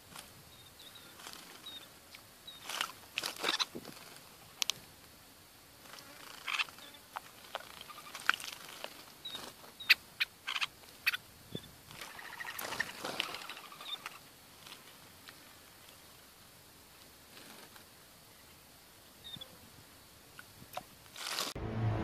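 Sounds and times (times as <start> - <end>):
birds chirping: 0.0 - 3.8, 6.2 - 14.7.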